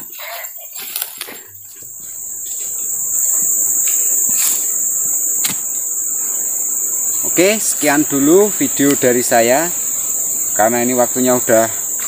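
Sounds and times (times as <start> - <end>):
insects droning: 0.0 - 12.0.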